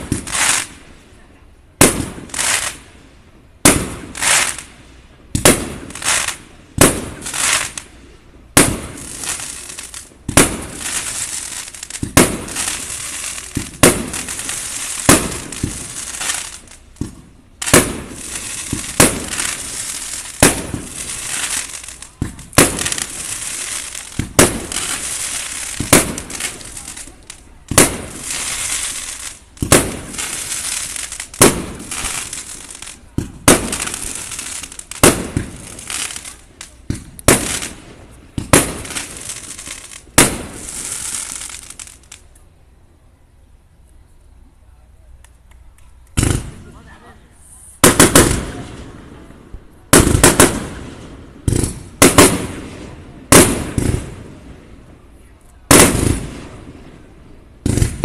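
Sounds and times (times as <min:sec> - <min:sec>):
crackling hiss of burning stars: 0:00.0 - 0:58.0
firework shells bursting: 0:08.6 - 0:42.2, 0:49.9 - 0:54.2.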